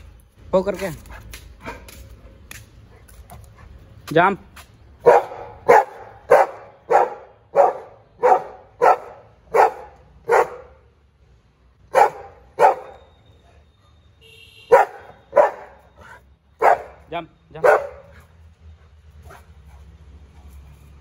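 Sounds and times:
dog barking: 5.0 - 10.8, 11.9 - 13.1, 14.7 - 17.0, 17.6 - 18.3.

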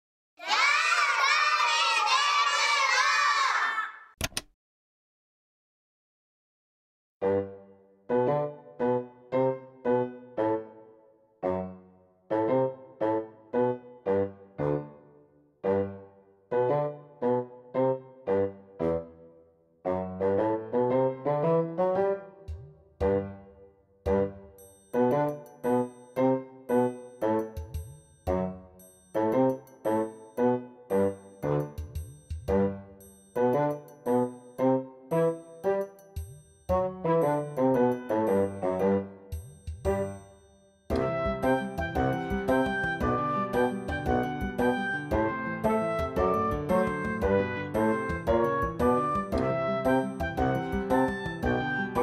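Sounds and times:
children calling out together: 0.4 - 4.1.

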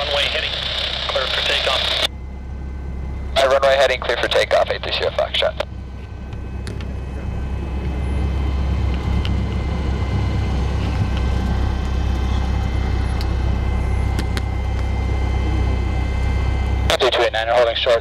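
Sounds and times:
propeller plane engine running: 0.0 - 18.0.

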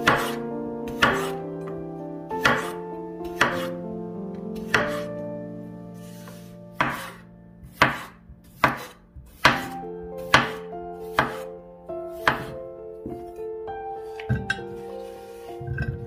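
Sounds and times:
knife chopping on cutting board: 0.1 - 1.3, 2.4 - 2.8, 3.4 - 3.7, 4.6 - 5.1, 6.2 - 11.4, 12.2 - 12.6.

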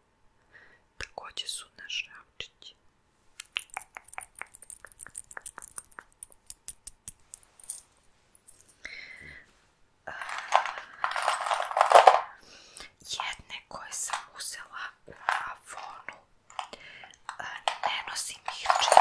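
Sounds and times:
metal earrings clinking: 3.6 - 8.8, 10.2 - 12.4, 17.3 - 19.0
rustling handling noise: 5.2 - 8.8, 9.5 - 12.4, 17.7 - 19.0.

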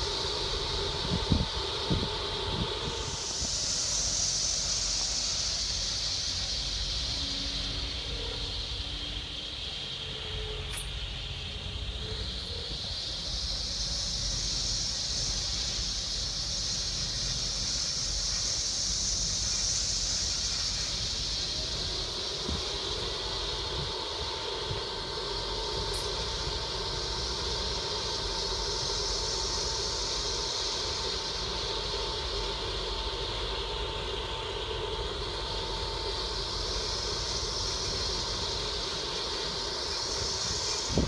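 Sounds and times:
storm wind on microphone: 0.9 - 3.5.

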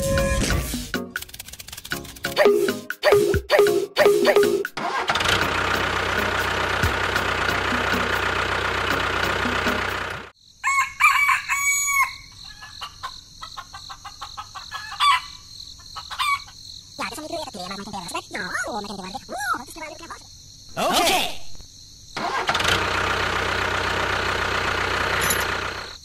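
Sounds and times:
motor running: 5.0 - 10.3, 22.4 - 26.0
crickets chirring: 10.3 - 22.4, 24.2 - 26.0
rooster crowing: 10.6 - 12.9, 14.7 - 15.4.

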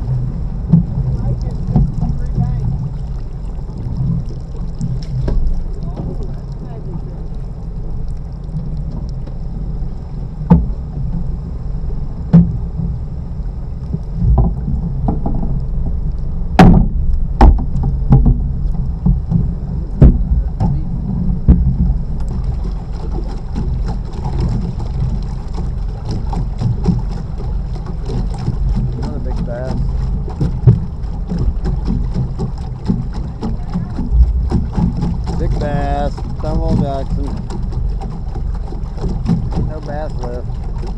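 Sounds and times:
sharp knocks on boat: 0.0 - 7.1, 10.4 - 13.1, 13.9 - 40.9
boat machinery droning: 0.0 - 40.9.

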